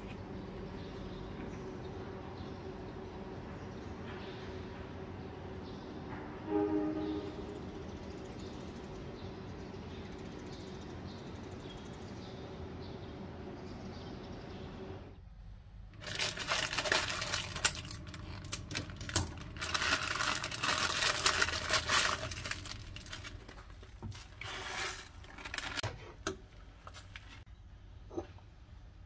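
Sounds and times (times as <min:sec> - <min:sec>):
plastic packet crinkling: 0:16.0 - 0:25.9.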